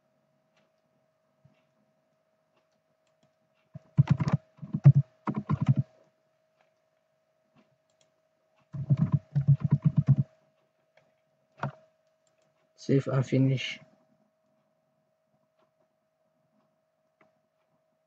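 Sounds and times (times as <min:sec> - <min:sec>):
keyboard typing: 0:03.1 - 0:05.9, 0:08.7 - 0:10.3.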